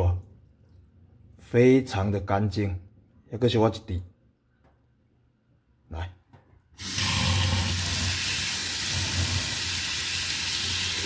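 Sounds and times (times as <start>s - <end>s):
water running into a steel sink: 6.8s - 11.0s.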